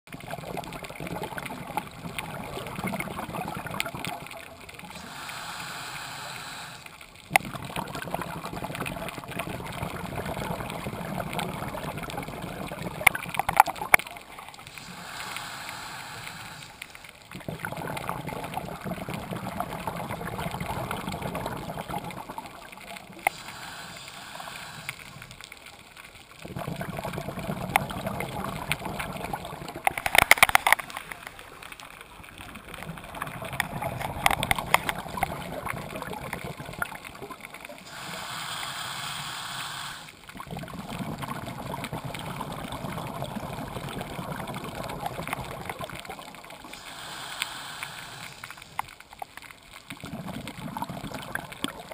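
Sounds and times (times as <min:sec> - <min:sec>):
regulator bubbling exhalations: 0:00.1 - 0:25.4, 0:26.4 - 0:30.8, 0:32.6 - 0:49.1, 0:49.9 - 0:51.9
hissing inhalations: 0:04.9 - 0:07.0, 0:14.6 - 0:17.2, 0:23.2 - 0:25.3, 0:37.8 - 0:40.3, 0:46.7 - 0:48.9.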